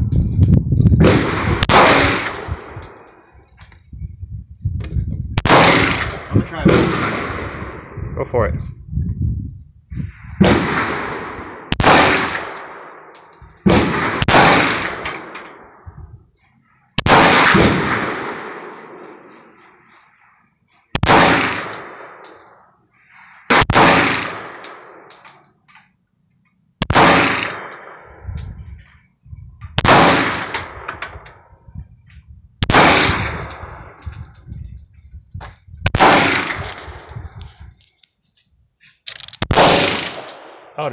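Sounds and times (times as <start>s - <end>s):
pistol shots echoing: 1.0s - 3.1s, 5.4s - 7.5s, 10.4s - 15.3s, 21.0s - 22.4s, 23.5s - 25.2s, 26.8s - 28.0s, 29.8s - 30.8s, 35.9s - 37.0s, 39.5s - 40.8s.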